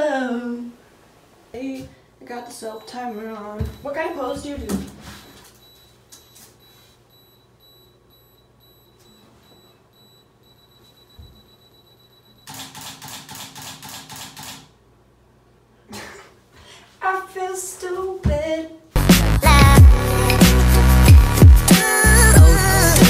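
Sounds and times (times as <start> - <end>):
phone self-timer beeps: 5.6 - 12.7
camera shutter clicks: 12.5 - 14.7.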